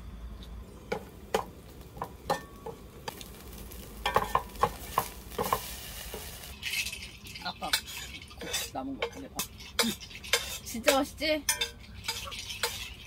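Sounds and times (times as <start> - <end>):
fried rice sizzling in a pot: 0.8 - 13.0
spatula knocking and scraping pot: 4.1 - 5.7, 7.7 - 13.0.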